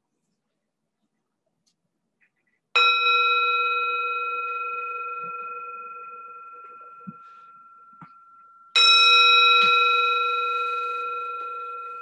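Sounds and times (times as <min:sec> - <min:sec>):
singing bowl ringing: 0:02.8 - 0:12.0.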